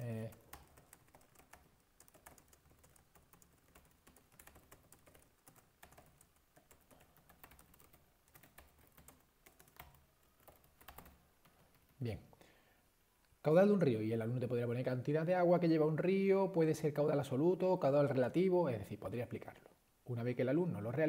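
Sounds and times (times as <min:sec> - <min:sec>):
keyboard typing: 0:00.0 - 0:12.0.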